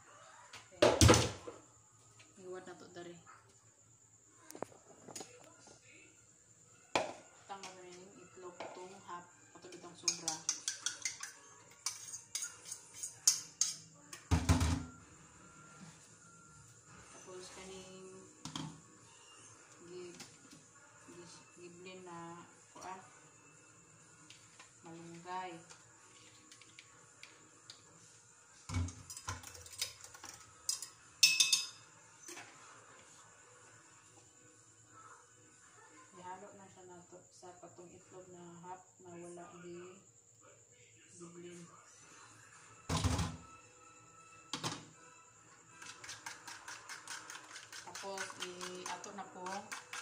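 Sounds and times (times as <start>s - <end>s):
kitchenware knocking and clinking: 7.0s - 7.2s, 10.0s - 15.0s, 28.7s - 31.8s
utensil clicking against dish: 10.1s - 12.5s, 45.8s - 50.0s.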